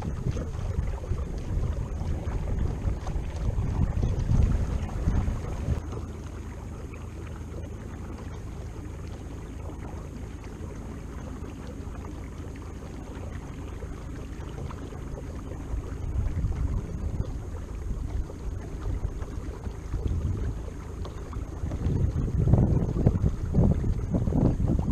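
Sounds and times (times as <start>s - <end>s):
wind on microphone: 0.0s - 6.0s, 13.0s - 24.9s
water washing along kayak hull: 0.0s - 24.9s.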